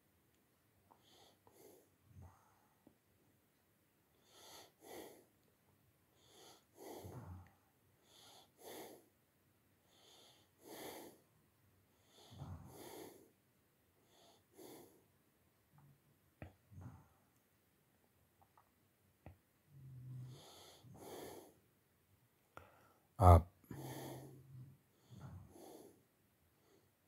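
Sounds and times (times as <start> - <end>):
soft breathing: 0.9 - 3.0, 6.1 - 9.2, 9.8 - 13.4, 14.0 - 15.2, 19.8 - 21.7, 22.5 - 23.1, 23.7 - 27.0.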